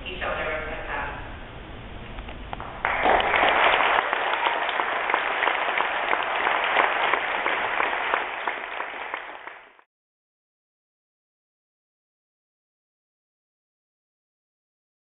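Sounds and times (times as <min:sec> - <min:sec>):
audience applauding: 0:02.6 - 0:09.9.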